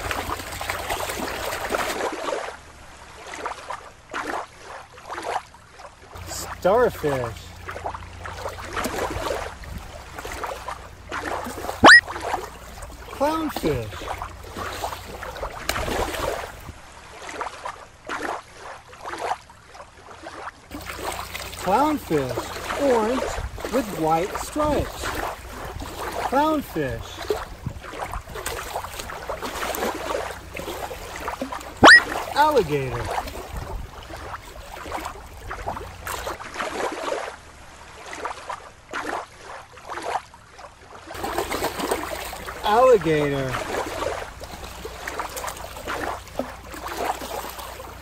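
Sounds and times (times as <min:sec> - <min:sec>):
water gurgling: 0:00.0 - 0:03.6, 0:06.1 - 0:17.7, 0:20.7 - 0:37.1, 0:41.1 - 0:48.0
water lapping on shore: 0:00.0 - 0:48.0.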